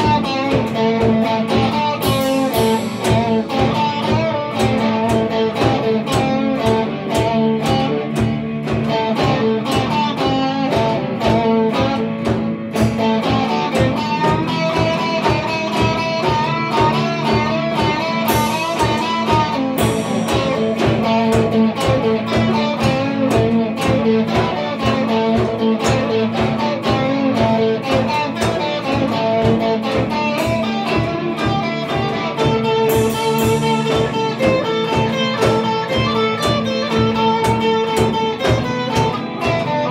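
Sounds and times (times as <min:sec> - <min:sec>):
drum beat: 0:00.0 - 0:39.9
electric guitars: 0:00.0 - 0:39.9
cymbal crashes: 0:02.0 - 0:03.9, 0:18.2 - 0:21.4, 0:32.9 - 0:34.6.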